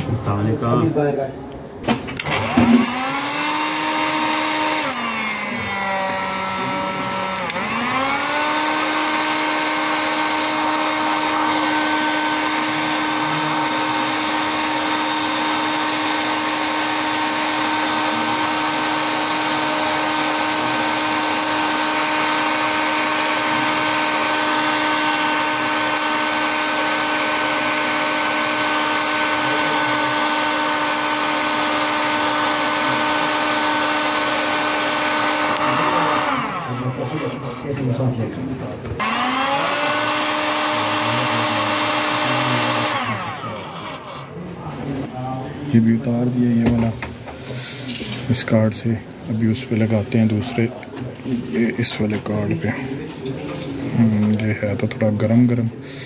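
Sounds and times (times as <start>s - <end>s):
hot air gun blower whining: 2.1s - 37.8s, 39.0s - 44.4s.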